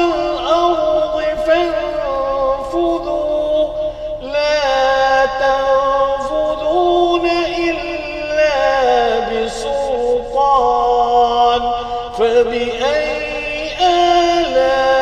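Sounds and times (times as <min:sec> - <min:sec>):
person chanting melodically: 0:00.0 - 0:15.0.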